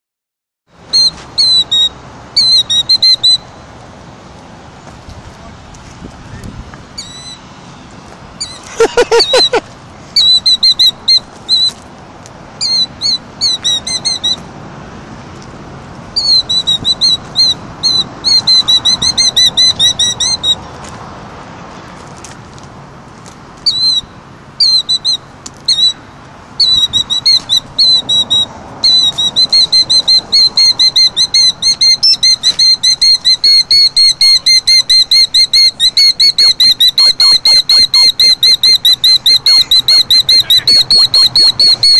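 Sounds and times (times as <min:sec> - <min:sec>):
killdeer shrill alarm calls: 0:00.9 - 0:03.5, 0:07.0 - 0:07.4, 0:10.2 - 0:11.8, 0:12.6 - 0:14.4, 0:16.2 - 0:20.7, 0:23.6 - 0:26.0, 0:26.6 - 0:41.9.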